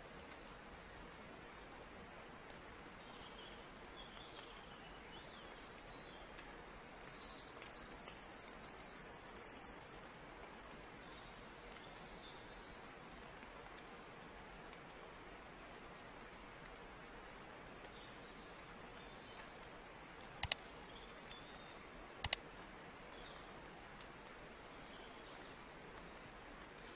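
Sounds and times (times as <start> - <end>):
steady low hiss: 0.0 - 26.9
songbird chirping: 2.9 - 13.2, 20.4 - 22.4.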